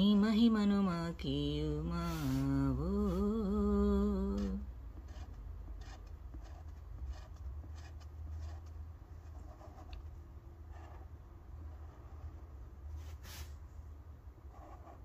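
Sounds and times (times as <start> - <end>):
scratchy writing strokes: 2.0 - 3.4, 4.2 - 13.5, 14.5 - 15.0.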